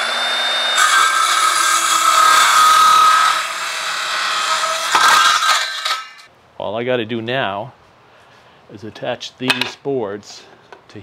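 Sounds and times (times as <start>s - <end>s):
circular saw cutting wood: 0.0s - 6.3s.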